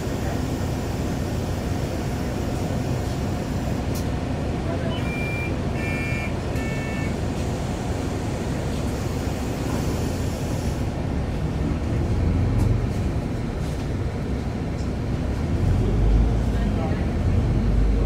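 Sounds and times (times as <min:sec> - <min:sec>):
bus engine and road rumble: 0:00.0 - 0:18.0
short high beeps: 0:04.9 - 0:07.2.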